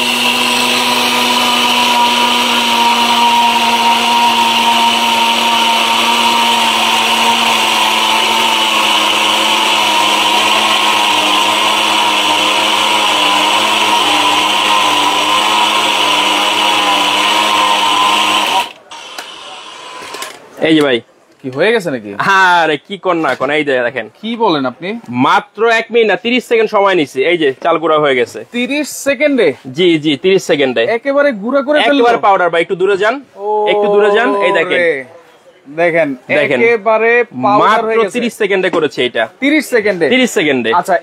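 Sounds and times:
blender grinding rice: 0.0 - 20.2.

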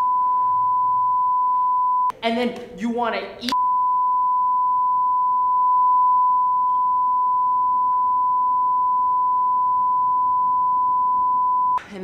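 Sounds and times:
censor bleep: 0.0 - 2.1, 3.6 - 11.8.

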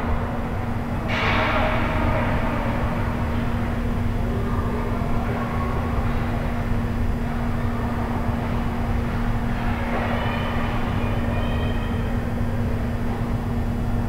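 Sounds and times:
constant hum: 0.0 - 14.0
faint high tones: 9.8 - 12.2.

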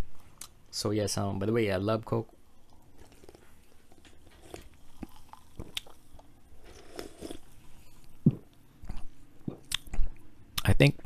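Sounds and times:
person gulping and swallowing: 2.8 - 7.5, 8.2 - 10.2
wet mouth clicks: 9.5 - 10.0.

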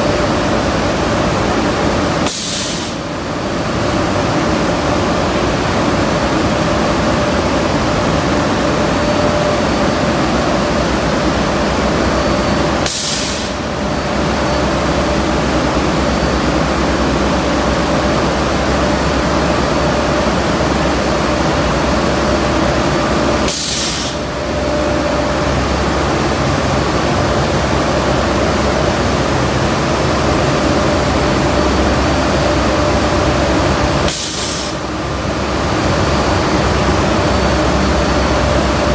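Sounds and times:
short sharp hisses: 2.3 - 3.0.

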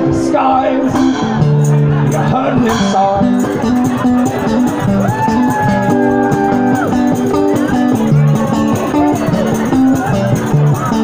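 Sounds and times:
acoustic guitar chords: 0.0 - 11.0
high sliding guitar note: 0.8 - 3.6.

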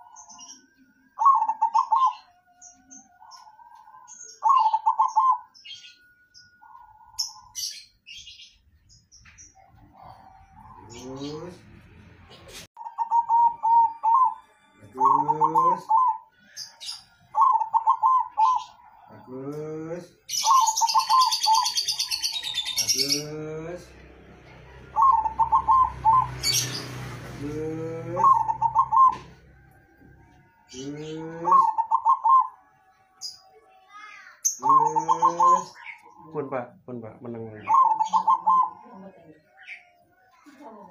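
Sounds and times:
dove cooing: 1.2 - 2.4, 3.2 - 5.6, 12.8 - 14.4, 15.0 - 16.3, 17.3 - 19.0, 20.4 - 23.4, 24.9 - 26.8, 27.4 - 29.4, 30.8 - 32.6, 34.6 - 36.3, 37.6 - 39.3.

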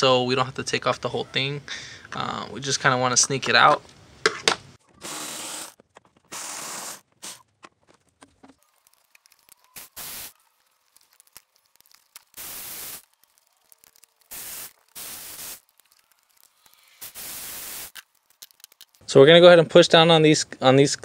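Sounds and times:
hissing: 9.2 - 19.0.

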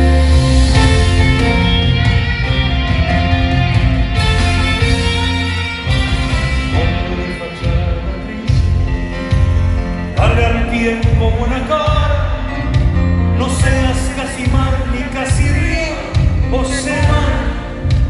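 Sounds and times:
heavy low beat: 0.0 - 18.0
live band playing a ballad: 0.0 - 18.0
man singing: 6.5 - 9.4, 10.0 - 18.0.

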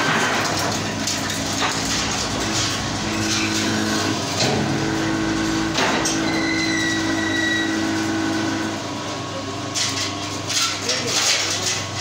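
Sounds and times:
motor and pump hum: 0.0 - 12.0.

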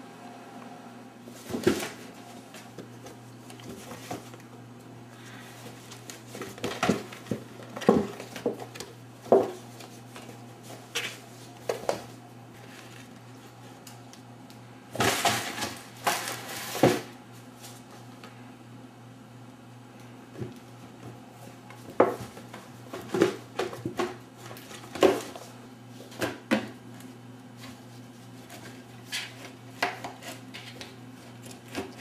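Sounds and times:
kittens scrabbling at cardboard box: 1.3 - 4.4, 5.4 - 13.1, 21.8 - 26.8.

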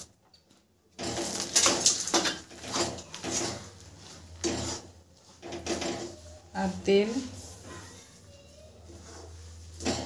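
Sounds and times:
spatula scraping a metal pan: 2.3 - 7.9, 8.9 - 10.0.

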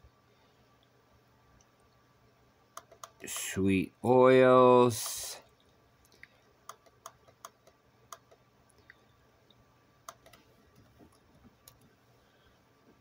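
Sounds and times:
keyboard keystrokes: 2.8 - 3.3, 10.1 - 11.8
computer mouse clicks: 2.8 - 3.4, 6.0 - 11.9.

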